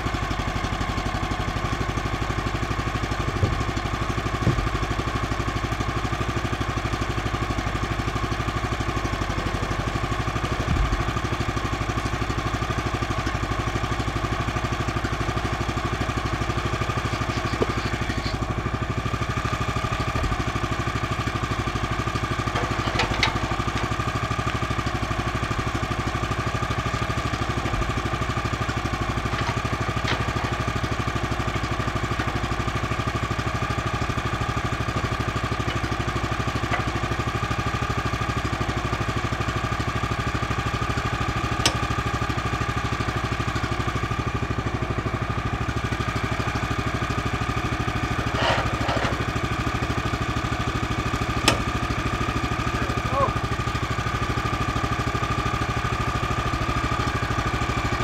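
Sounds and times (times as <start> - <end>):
gasoline engine idling: 0.0 - 58.0
timber knocking: 51.4 - 51.8.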